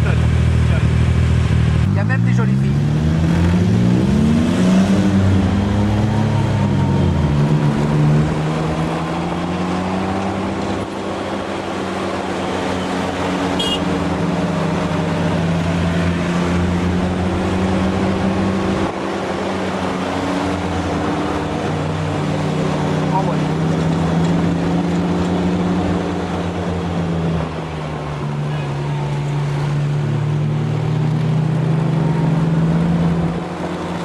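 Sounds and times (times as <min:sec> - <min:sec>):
vehicle engine running: 0:00.0 - 0:03.5
passing vehicle engine: 0:00.0 - 0:34.0.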